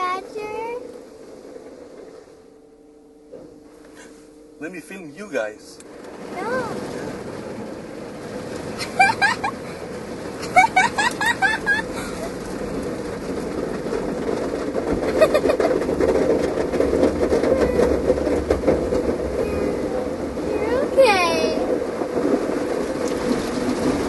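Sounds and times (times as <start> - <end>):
car wash brushes and water spray: 4.8 - 24.0
small dog whining: 17.4 - 18.0, 19.4 - 20.0.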